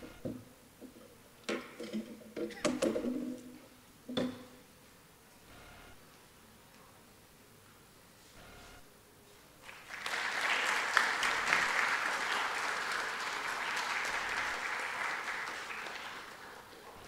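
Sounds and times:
audience applauding: 0:09.6 - 0:17.0.

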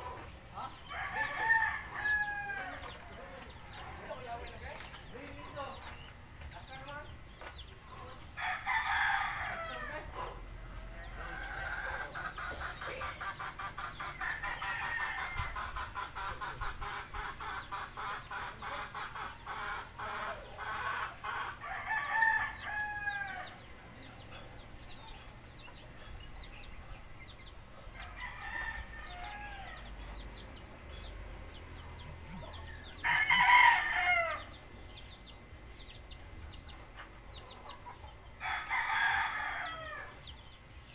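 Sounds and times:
small birds chirping: 0:00.0 - 0:40.9
rooster crowing: 0:00.8 - 0:02.9, 0:08.4 - 0:10.1, 0:14.2 - 0:15.6, 0:20.2 - 0:23.6, 0:27.9 - 0:30.3, 0:31.4 - 0:34.6, 0:38.4 - 0:40.2.

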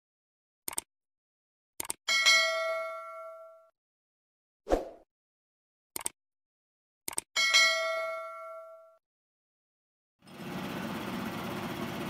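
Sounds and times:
bright bell ding: 0:07.4 - 0:08.9.

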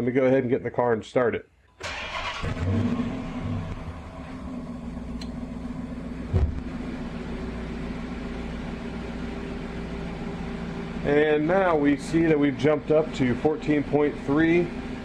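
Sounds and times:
car engine starting and idling: 0:01.8 - 0:15.0
thump: 0:06.3 - 0:06.7.

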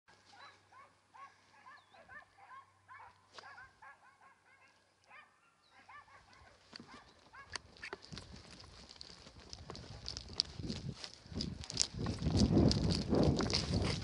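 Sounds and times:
faint dogs barking and yelping: 0:00.1 - 0:08.1.

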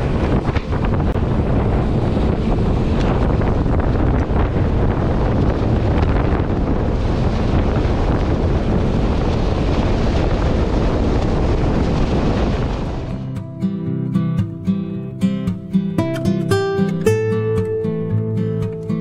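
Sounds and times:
acoustic guitar music: 0:00.0 - 0:06.4, 0:12.8 - 0:19.0
boat motor running: 0:00.0 - 0:13.2
rushing water: 0:00.0 - 0:13.5
wind buffeting microphone: 0:00.0 - 0:15.8.

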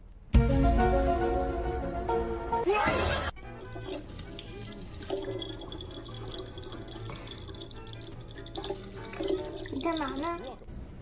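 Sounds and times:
water running from tap into bottle: 0:03.4 - 0:10.6.

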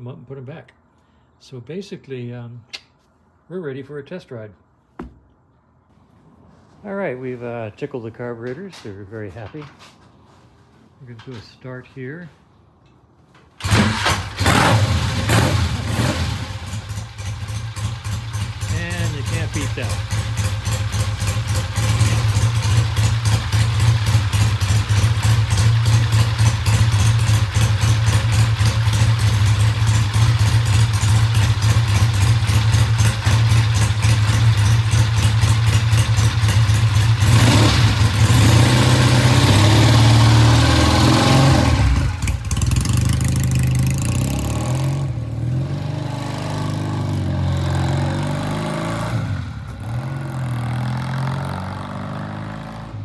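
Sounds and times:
motorcycle engine idling: 0:16.7 - 0:37.3, 0:42.0 - 0:44.1.

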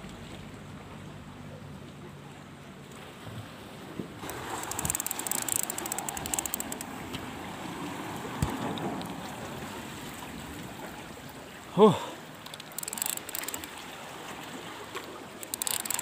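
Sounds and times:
sea water washing: 0:02.4 - 0:16.0
fishing reel ticking: 0:04.2 - 0:06.9, 0:12.4 - 0:13.8, 0:15.4 - 0:16.0.

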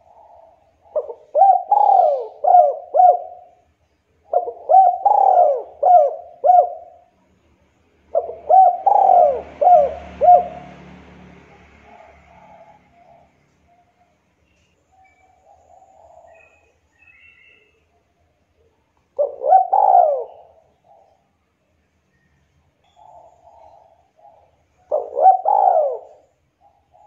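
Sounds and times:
dove cooing: 0:00.0 - 0:07.2, 0:08.1 - 0:14.1, 0:15.0 - 0:17.7, 0:19.1 - 0:21.4, 0:22.9 - 0:27.0.

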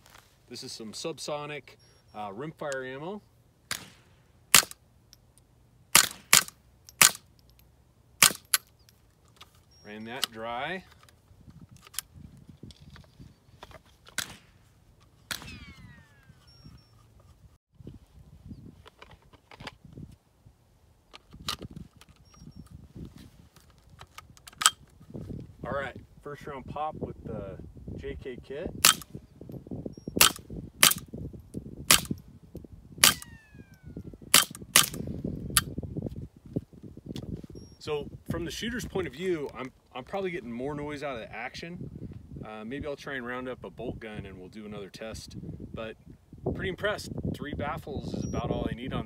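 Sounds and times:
suppressed rifle shots: 0:03.7 - 0:04.8, 0:05.9 - 0:07.3, 0:08.2 - 0:08.7, 0:14.2 - 0:14.6, 0:15.3 - 0:16.2, 0:31.9 - 0:32.2, 0:33.0 - 0:35.0.

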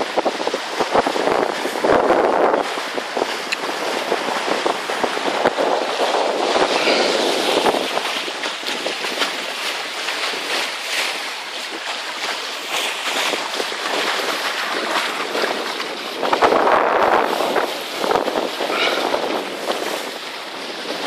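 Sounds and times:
water rushing: 0:00.0 - 0:21.0
wind: 0:00.0 - 0:21.0.

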